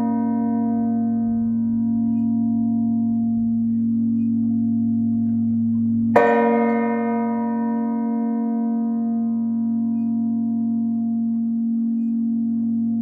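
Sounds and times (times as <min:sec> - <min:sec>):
church bell clanging: 0:00.0 - 0:13.0
deep bell hum: 0:00.0 - 0:13.0.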